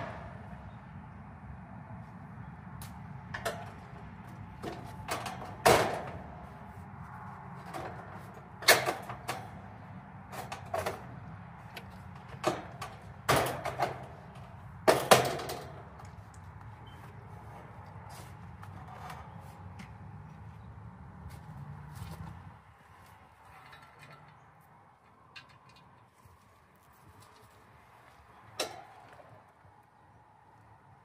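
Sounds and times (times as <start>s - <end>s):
tools knocking and clunking: 3.3s - 6.4s, 10.3s - 16.1s, 23.5s - 24.6s.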